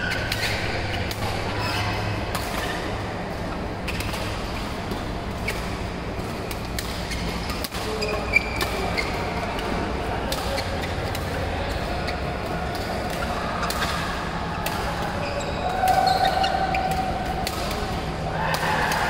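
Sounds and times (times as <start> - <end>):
shoe squeak: 0.0 - 2.8, 7.0 - 9.4, 15.2 - 16.9
low hum of hall: 0.0 - 19.0
rackets striking shuttlecock: 0.0 - 19.0.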